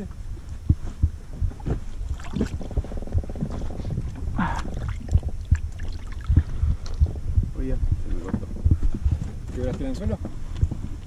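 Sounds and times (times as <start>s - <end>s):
steady multi-tone hum: 0.0s - 11.0s
waves slapping boat hull: 1.6s - 7.0s.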